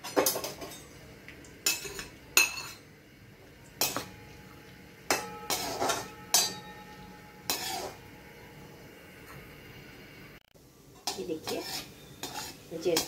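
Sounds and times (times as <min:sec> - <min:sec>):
metal spoon clinking on metal pan: 0:01.6 - 0:02.8, 0:03.8 - 0:04.3, 0:05.1 - 0:08.0, 0:11.0 - 0:13.0
plate scraping metal pan: 0:05.2 - 0:06.6, 0:07.4 - 0:08.0, 0:11.4 - 0:13.0.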